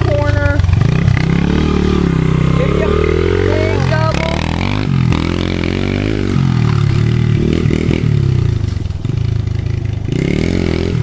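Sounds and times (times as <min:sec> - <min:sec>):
motorbike engine revving: 0:00.0 - 0:11.0.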